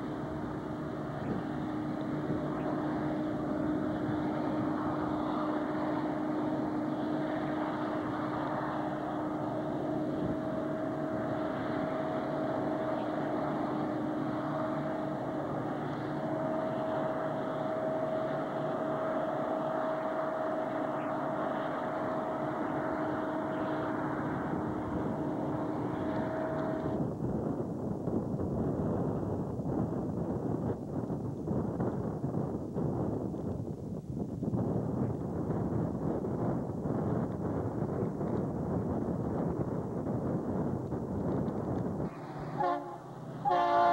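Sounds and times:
diesel locomotives droning: 0.0 - 43.9
wind on microphone: 0.0 - 43.9.

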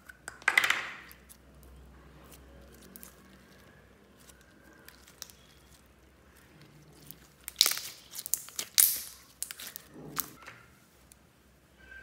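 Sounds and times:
slime crackling and squelching: 1.0 - 10.4.

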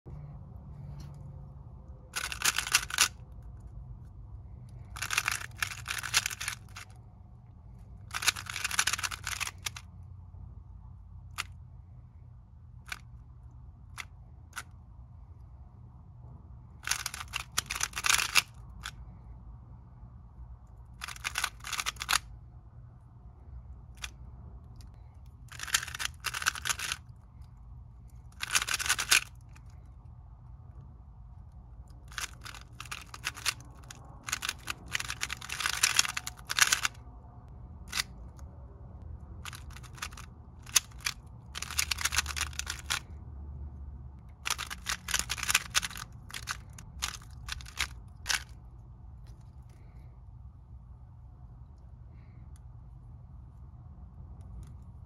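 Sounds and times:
puzzle cube clacking: 2.1 - 3.7, 4.6 - 7.0, 8.0 - 9.9, 11.3 - 11.6, 12.8 - 13.1, 16.8 - 19.0, 20.9 - 22.3, 25.5 - 27.2, 28.2 - 29.8, 31.9 - 37.0, 37.9 - 38.2, 39.4 - 43.2, 44.3 - 48.6.

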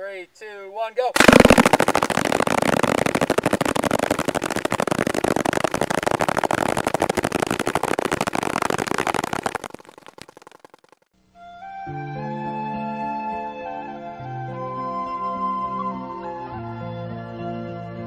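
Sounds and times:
paintball markers firing: 1.2 - 10.2
paintballs hitting a book: 1.2 - 11.0.

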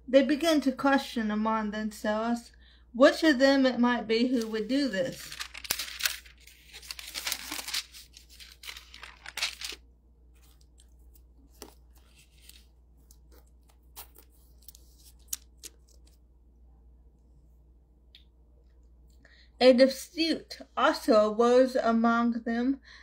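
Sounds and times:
paper rustling and crinkling: 4.3 - 16.2.

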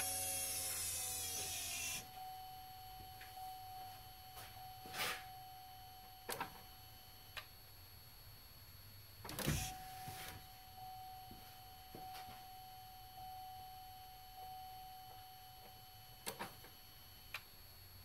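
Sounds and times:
electric fuel pump whining: 0.0 - 2.4, 9.3 - 10.9.

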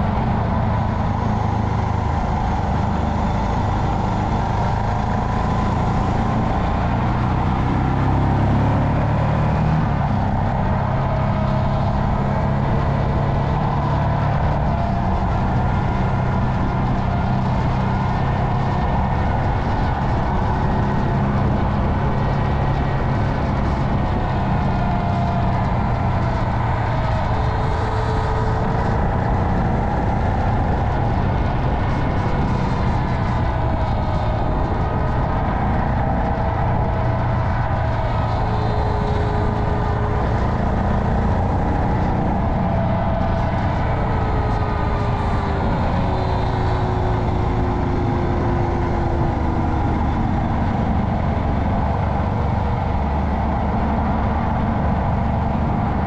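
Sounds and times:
wind and road noise: 0.0 - 56.0.

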